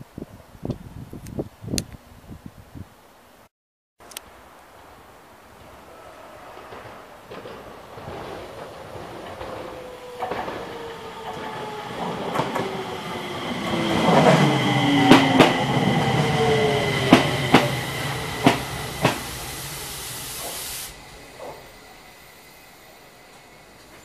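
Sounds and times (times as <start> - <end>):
electric train motor braking: 5.9 - 24.0
wheels clacking over rail joint: 6.5 - 12.9, 18.4 - 24.0
steady high whine: 11.0 - 24.0.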